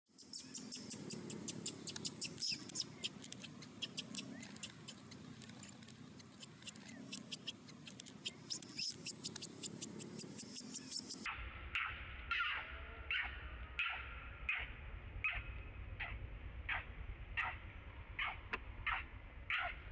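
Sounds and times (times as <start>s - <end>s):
young monkey squeaking: 0.2s - 15.4s.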